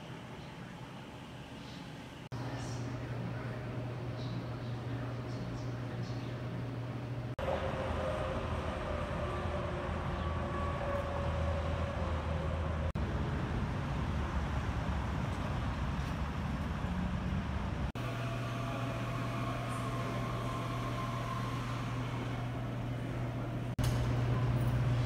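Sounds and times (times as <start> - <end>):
low indoor hum: 0.0 - 25.0
cars and idling trucks: 7.4 - 25.0.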